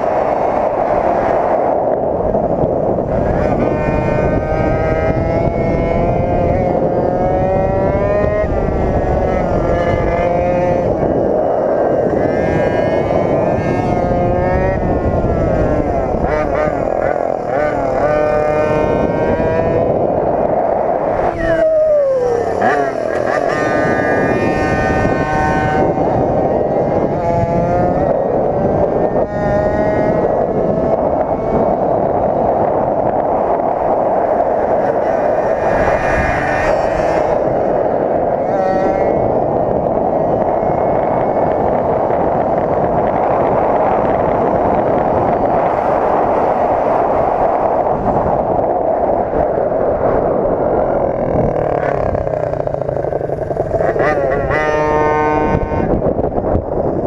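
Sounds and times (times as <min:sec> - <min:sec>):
rushing wind noise: 0:00.0 - 0:57.0
small two-stroke engine buzzing: 0:21.1 - 0:46.8, 0:50.9 - 0:57.0.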